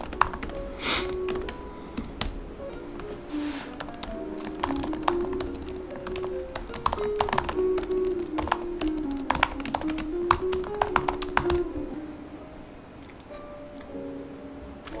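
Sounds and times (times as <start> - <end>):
laptop keyboard typing: 0.0 - 2.4, 3.0 - 11.8
background music with held notes: 0.0 - 15.0.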